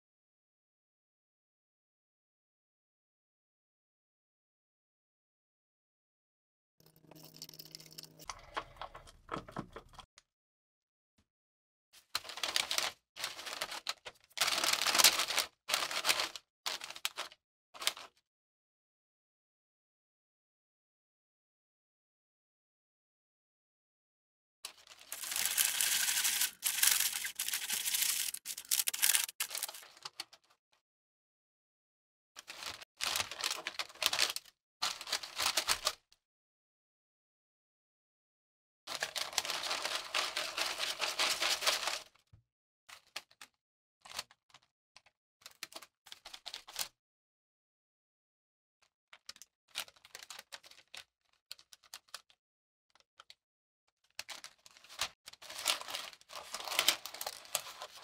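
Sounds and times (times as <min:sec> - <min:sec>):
paper crinkling: 0:12.2 - 0:18.1, 0:24.8 - 0:30.4, 0:38.9 - 0:42.1, 0:54.2 - 0:58.0.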